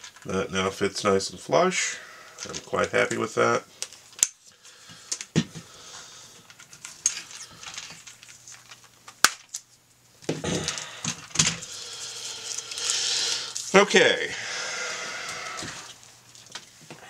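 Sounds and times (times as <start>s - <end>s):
sharp clicks of small parts: 3.8s - 4.4s.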